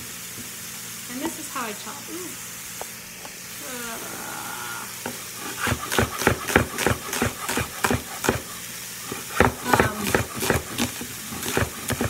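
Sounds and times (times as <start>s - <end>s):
knife chopping on wooden board: 5.0s - 8.5s, 9.1s - 12.0s.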